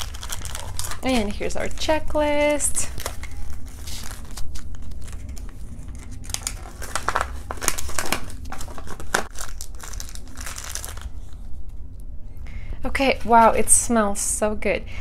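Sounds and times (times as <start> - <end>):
wrapper crinkling and rustling: 0.0 - 11.4.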